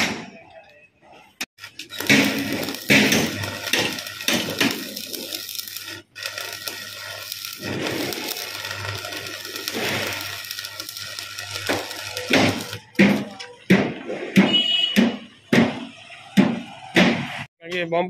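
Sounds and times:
arc welding crackling hiss: 1.6 - 13.4.

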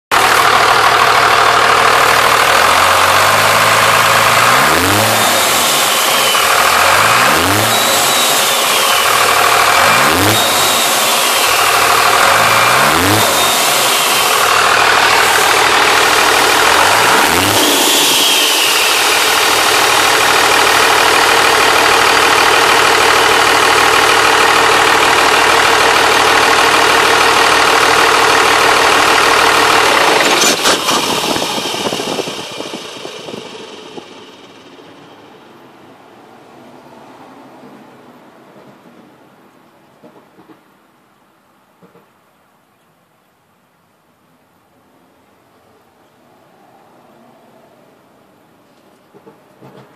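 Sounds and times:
diesel engine revving and idling: 0.1 - 38.7
turbocharger whistle: 1.6 - 21.8, 28.0 - 35.6.

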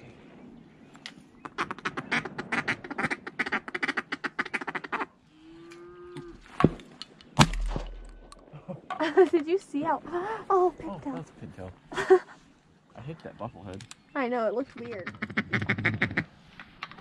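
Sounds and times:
ducks quacking: 1.4 - 5.2, 14.8 - 16.4
shotgun shots: 7.4 - 8.2.

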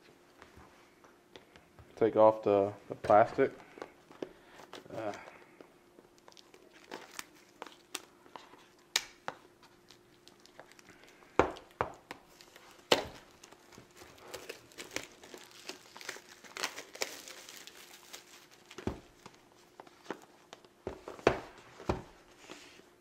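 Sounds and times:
plastic wrap crackling: 6.0 - 9.0, 9.6 - 20.7.

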